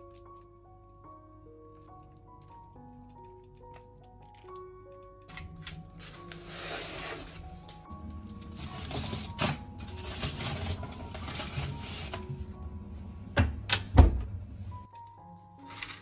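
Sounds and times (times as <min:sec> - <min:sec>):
foil pan crinkling and scraping: 0:06.0 - 0:12.3.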